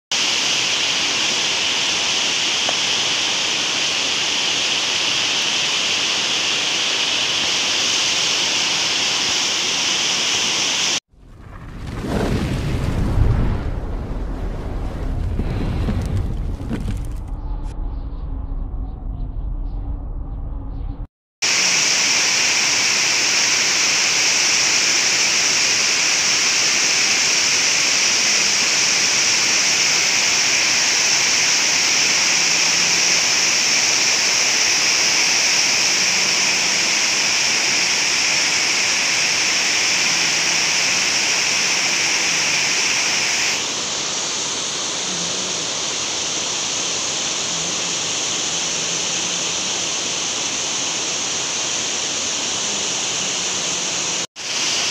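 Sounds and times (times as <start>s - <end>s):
water rushing over a weir: 21.4s - 54.9s.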